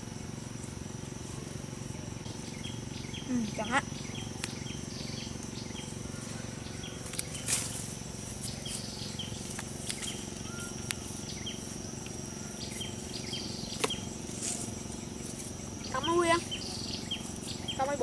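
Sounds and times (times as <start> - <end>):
high-pitched insect drone: 0.0 - 18.0
short insect chirps: 0.0 - 18.0
rustles and clicks: 7.0 - 12.2.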